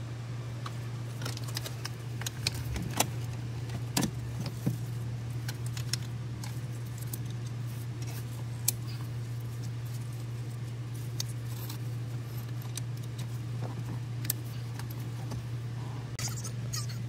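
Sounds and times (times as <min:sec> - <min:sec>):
steady low hum: 0:00.0 - 0:17.0
plastic connectors clicking and rattling: 0:01.2 - 0:04.7.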